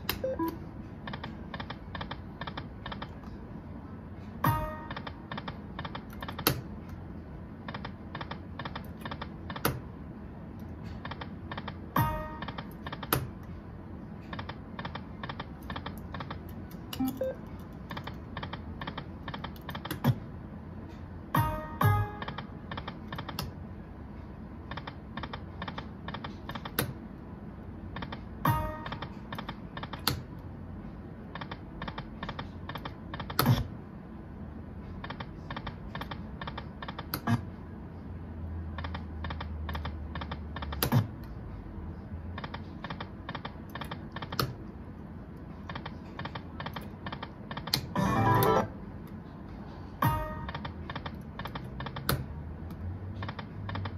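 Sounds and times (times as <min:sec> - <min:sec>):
slot machine reels clicking: 0:45.7 - 0:48.7.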